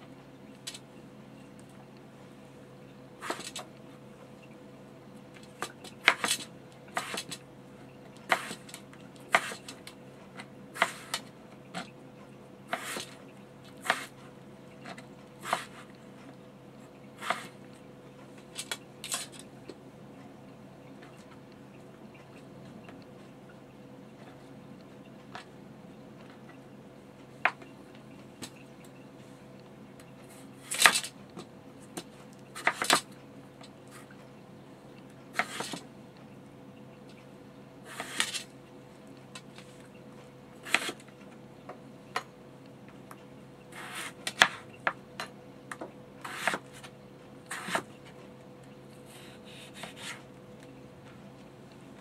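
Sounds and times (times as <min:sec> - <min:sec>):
knife cutting on plastic board: 0:03.2 - 0:03.6, 0:06.0 - 0:07.4, 0:08.3 - 0:09.8, 0:10.8 - 0:11.9, 0:12.7 - 0:13.2, 0:13.8 - 0:14.2, 0:14.9 - 0:16.0, 0:17.2 - 0:17.6, 0:32.0 - 0:33.0, 0:35.4 - 0:35.8, 0:37.9 - 0:38.4, 0:40.6 - 0:41.0, 0:43.8 - 0:44.6, 0:46.2 - 0:46.9, 0:47.5 - 0:47.9, 0:49.1 - 0:50.2.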